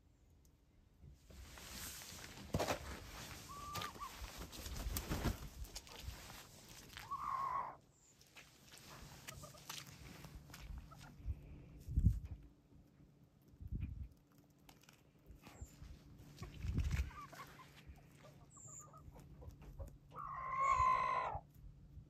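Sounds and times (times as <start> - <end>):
rustling: 1.3 - 7.1
hen calling: 3.4 - 4.2, 7.0 - 7.8, 20.1 - 21.4.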